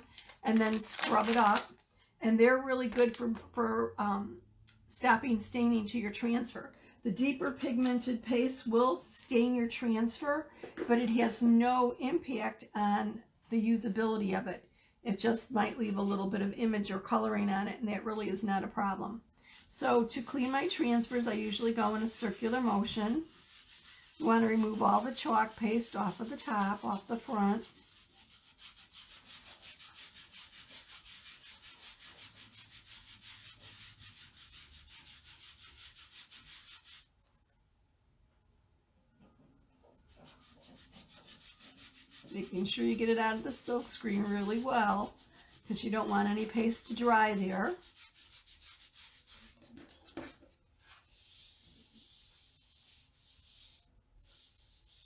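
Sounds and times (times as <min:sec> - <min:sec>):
sponge rubbing rhythmically: 0:19.6 - 0:37.1, 0:39.8 - 0:55.0.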